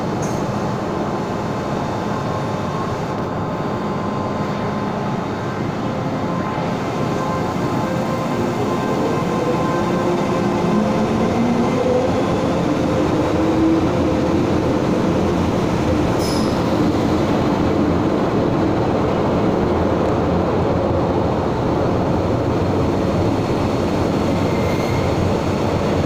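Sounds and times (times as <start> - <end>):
train wheels rumbling on rail: 0.0 - 26.0
high wheel squeal: 24.4 - 25.3.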